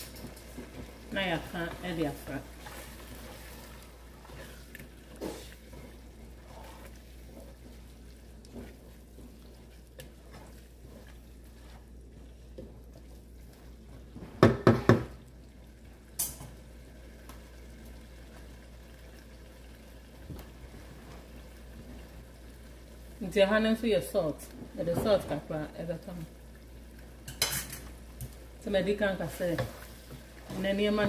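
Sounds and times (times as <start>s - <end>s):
wooden spatula knocking metal pot: 14.4s - 15.2s.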